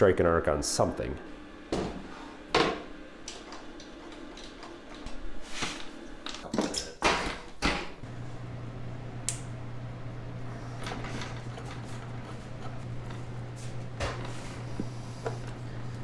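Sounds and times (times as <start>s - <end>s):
steady low hum: 7.9s - 16.0s.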